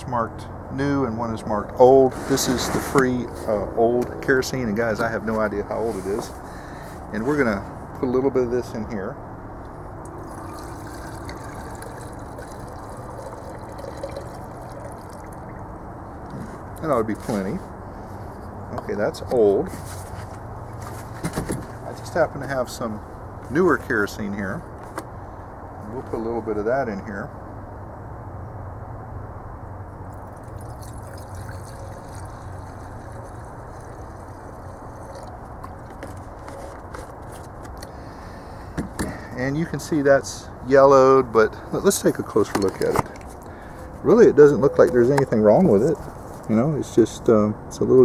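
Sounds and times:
liquid trickling into glass jar: 0:10.1 - 0:15.8, 0:30.1 - 0:36.0.

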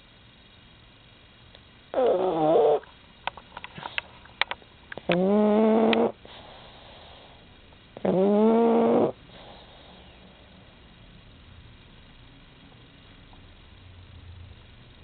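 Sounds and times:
dog snoring: 0:01.9 - 0:03.0, 0:05.0 - 0:07.4, 0:08.0 - 0:10.7
snuffling clicks: 0:02.0 - 0:06.5.

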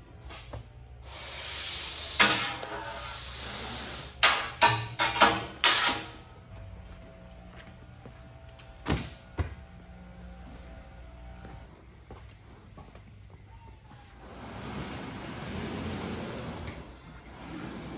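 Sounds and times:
wet rug sliding from metal tube: 0:14.2 - 0:17.9.

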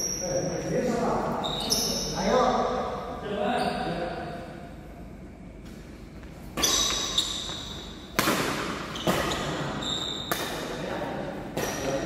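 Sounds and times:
court shoes squeaking: 0:00.0 - 0:00.7, 0:01.3 - 0:02.4, 0:03.5 - 0:04.3, 0:05.6 - 0:12.0
racket hitting shuttlecock: 0:06.5 - 0:10.8, 0:11.5 - 0:12.0.

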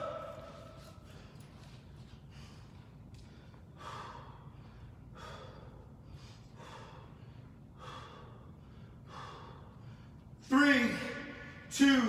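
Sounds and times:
low room hum: 0:00.0 - 0:12.0
man breathing hard: 0:00.8 - 0:10.4.

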